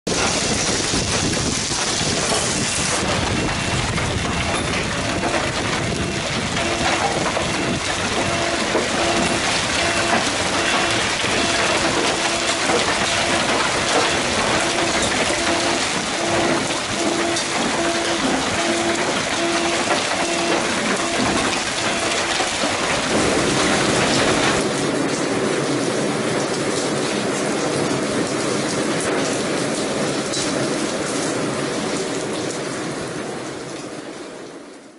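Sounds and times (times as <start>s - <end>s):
hailstones ticking on cars: 0.1s - 34.8s
hail and rain pelting: 0.1s - 34.9s
short beeps: 4.6s - 22.4s.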